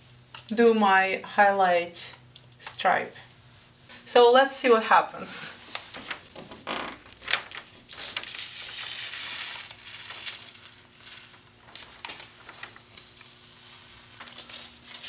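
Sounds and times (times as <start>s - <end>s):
tape ripping off a wall: 5.7s - 15.0s.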